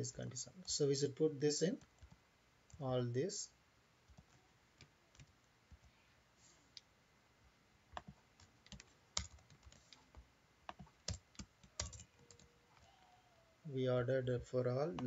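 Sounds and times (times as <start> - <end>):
keyboard keys typing: 1.8 - 2.8, 4.1 - 5.9, 7.9 - 12.5.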